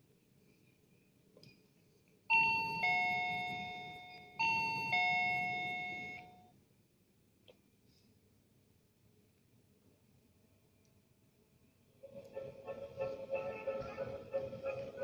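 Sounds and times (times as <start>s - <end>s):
electronic ding-dong door chime: 2.3s - 6.4s.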